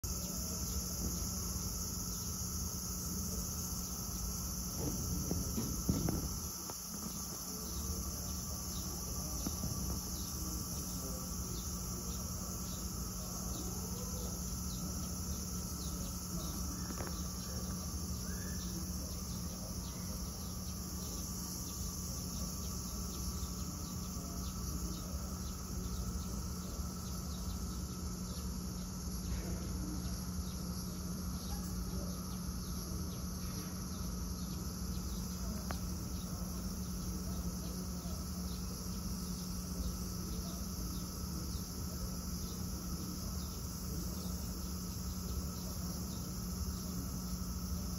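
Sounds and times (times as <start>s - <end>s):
cicadas droning: 0.0s - 47.9s
low steady hum: 0.0s - 47.9s.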